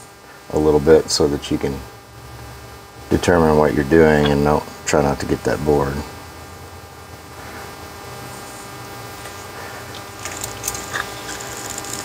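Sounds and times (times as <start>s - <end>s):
steady low hum: 0.0s - 12.0s
screwdriver scraping: 10.2s - 12.0s.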